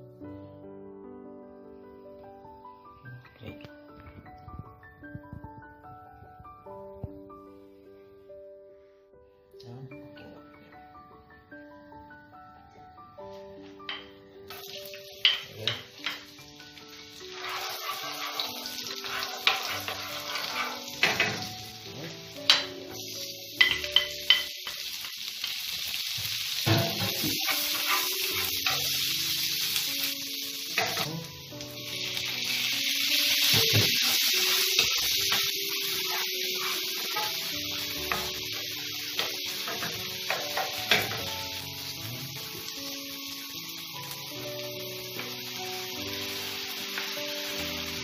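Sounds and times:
soft background music: 0.0s - 48.0s
oil sizzling in a frying pan: 13.6s - 48.0s
utensils knocking against pan: 15.2s - 16.3s, 17.8s - 21.6s, 22.5s - 22.8s, 23.6s - 24.8s, 26.6s - 29.0s, 30.8s - 31.1s, 33.5s - 38.5s, 39.2s - 41.4s.

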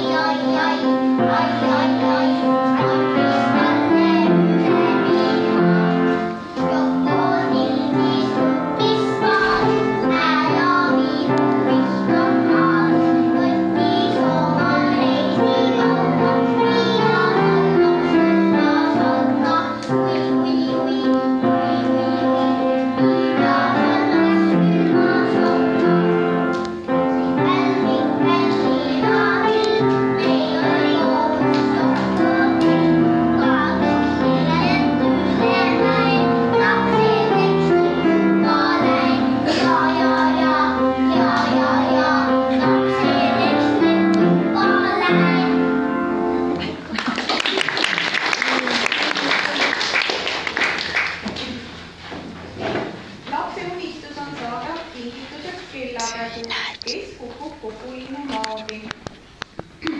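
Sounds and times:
girl singing into a microphone: 0.0s - 25.9s, 26.8s - 45.7s
children singing: 0.0s - 46.8s
instrumental accompaniment: 0.0s - 46.9s.

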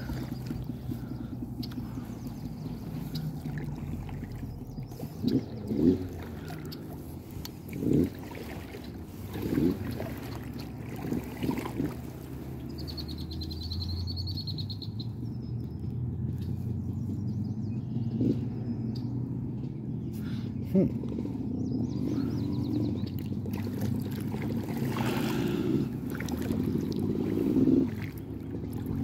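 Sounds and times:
knocks and splashes: 0.0s - 12.6s, 23.1s - 29.0s
outboard motor running: 0.0s - 29.0s.

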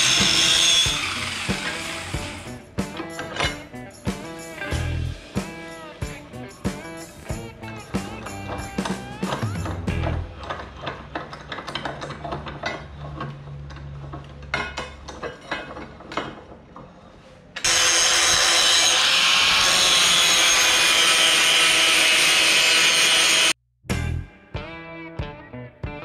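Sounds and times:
angle grinder grinding steel: 0.0s - 10.9s, 17.6s - 23.6s.

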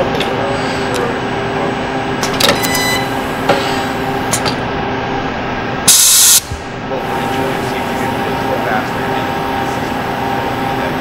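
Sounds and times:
machine hum: 0.0s - 11.0s
air hiss burst: 5.9s - 6.5s.

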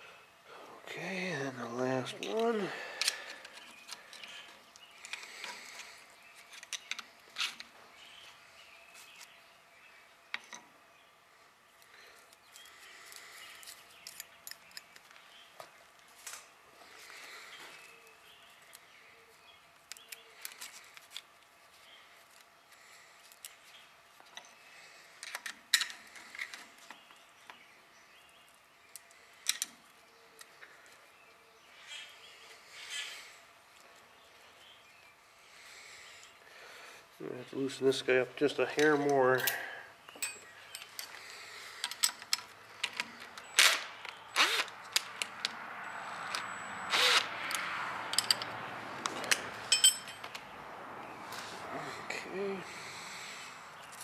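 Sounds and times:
metallic clicks of hand tools: 47.5s - 50.4s.

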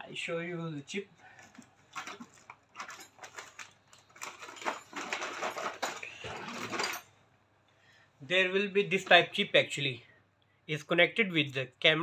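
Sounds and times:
plastic rustling and clicking: 1.2s - 7.0s
hands rummaging among small parts: 1.4s - 7.1s.

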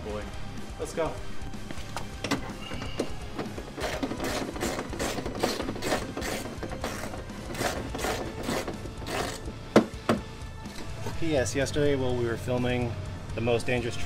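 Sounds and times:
hand tool clicking and scraping: 2.3s - 9.9s.

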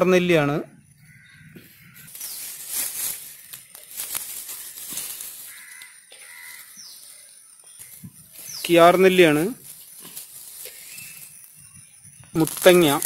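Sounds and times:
leaves and stems rustling: 1.6s - 13.0s.

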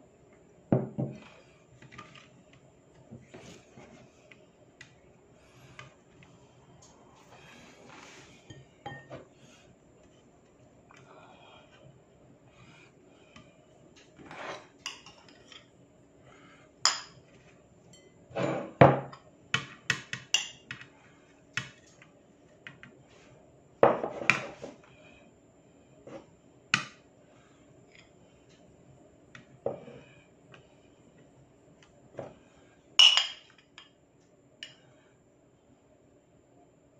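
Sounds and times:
cutlery clinking on ceramic bowl: 33.0s - 33.6s.

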